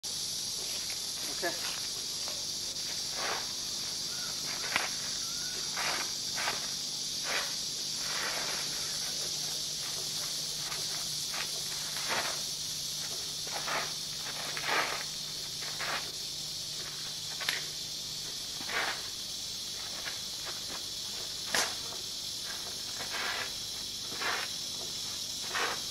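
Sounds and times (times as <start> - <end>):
steady high hiss: 0.0 - 25.9
feet scuffing on paved ground: 0.6 - 17.6.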